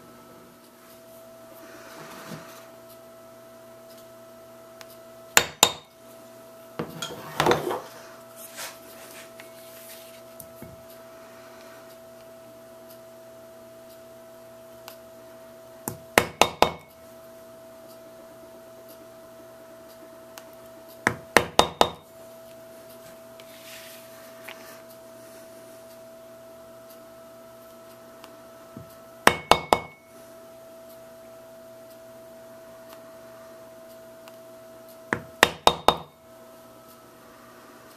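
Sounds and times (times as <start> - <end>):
mallet striking metal tool: 29.3 - 30.0.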